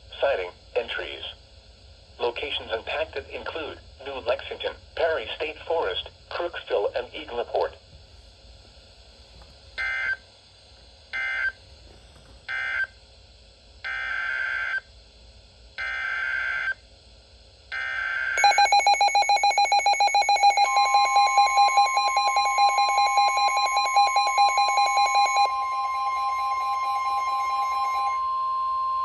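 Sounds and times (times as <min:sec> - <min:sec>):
rapidly pulsing electronic alarm: 0:09.8 - 0:10.3, 0:11.1 - 0:11.6, 0:12.5 - 0:13.0, 0:13.8 - 0:14.9, 0:15.8 - 0:16.8, 0:17.7 - 0:29.0
steady warning tone: 0:17.7 - 0:29.0
raspy digital code bursts: 0:18.4 - 0:28.2.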